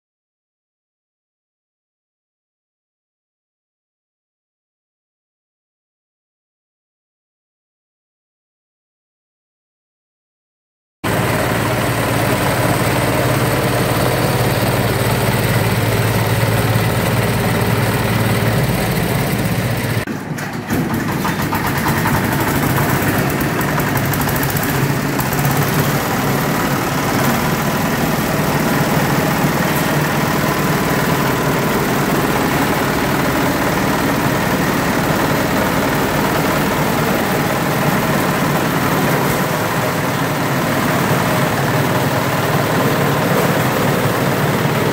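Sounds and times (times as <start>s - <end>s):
grass chopper machines running: 11.0s - 44.9s.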